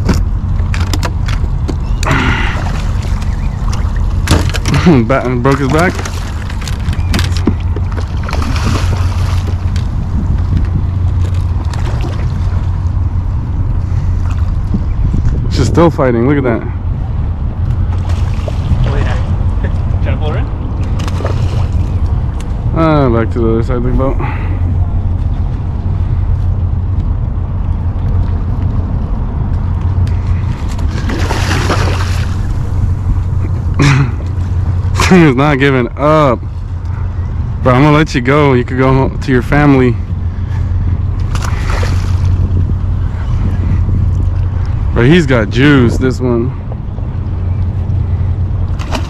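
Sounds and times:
wind on microphone: 0.0s - 35.0s, 39.0s - 49.0s
low boat rumble: 0.0s - 49.0s
fish splashing in water: 2.0s - 4.9s, 5.6s - 9.9s, 30.6s - 32.6s, 41.2s - 42.4s, 48.7s - 49.0s
fish splashing at surface: 30.9s - 32.5s.

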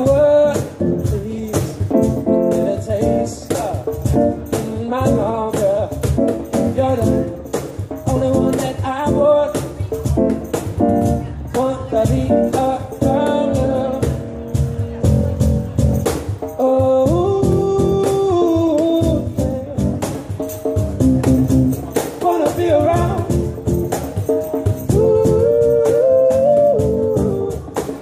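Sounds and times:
man singing into microphone: 0.0s - 10.0s, 11.4s - 14.5s, 16.5s - 20.2s, 22.2s - 23.5s, 24.9s - 28.0s
electric keyboard chords: 0.0s - 28.0s
steady beat: 0.0s - 28.0s.

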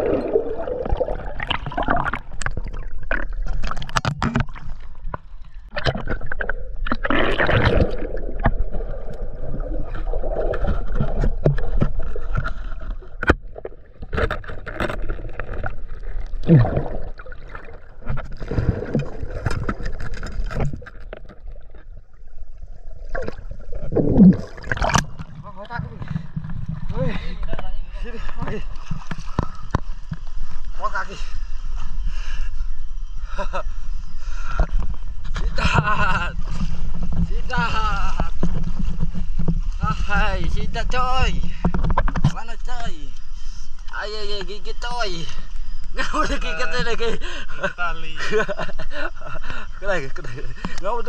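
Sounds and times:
water sloshing and gurgling: 0.0s - 32.0s, 34.2s - 51.0s.

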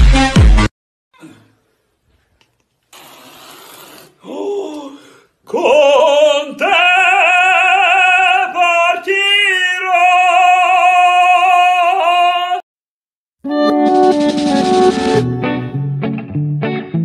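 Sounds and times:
man singing operatically: 5.5s - 12.6s.

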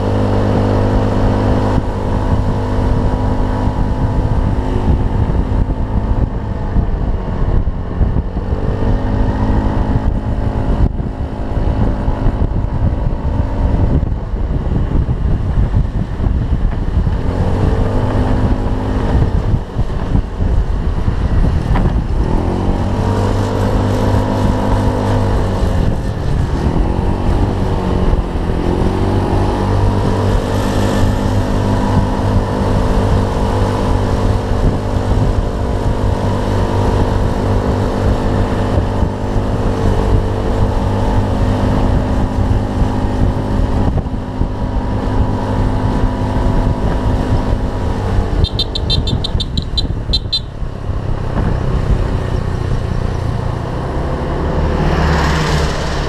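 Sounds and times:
scooter engine running: 10.0s - 53.6s
high chirps: 48.4s - 50.6s.

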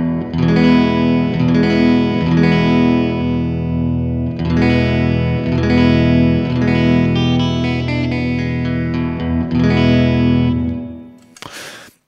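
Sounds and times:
electric guitar chords with reverb: 0.0s - 11.3s.

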